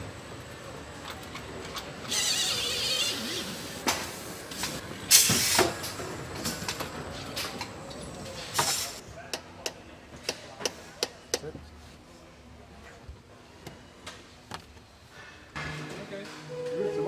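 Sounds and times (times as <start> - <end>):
compressed air hiss: 3.4 - 5.8.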